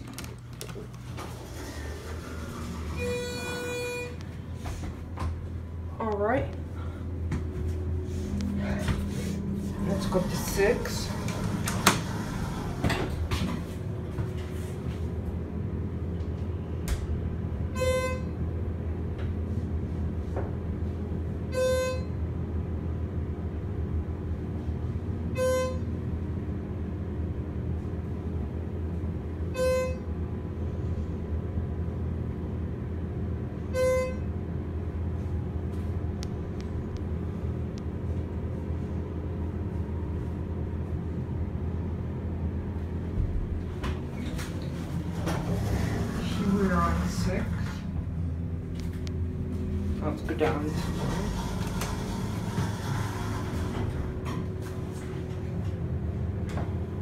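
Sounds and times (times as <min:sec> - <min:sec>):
elevator hum: 0:00.0 - 0:57.0.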